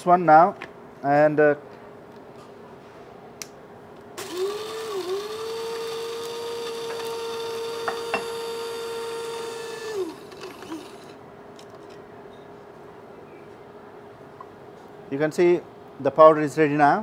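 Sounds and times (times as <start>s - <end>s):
electric spice grinder motor: 4.2s - 11.2s.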